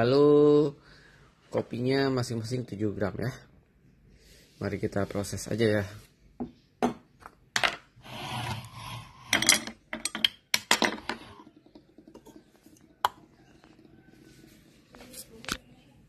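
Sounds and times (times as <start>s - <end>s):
objects clicking on wooden table: 9.3s - 13.8s.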